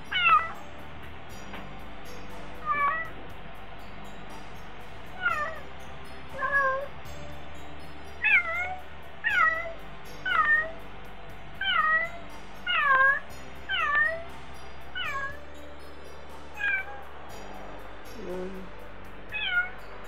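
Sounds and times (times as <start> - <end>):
cat meowing: 0.1 - 0.6, 2.6 - 3.1, 5.2 - 5.6, 11.6 - 14.2, 15.0 - 15.4, 16.6 - 17.0, 19.3 - 19.8.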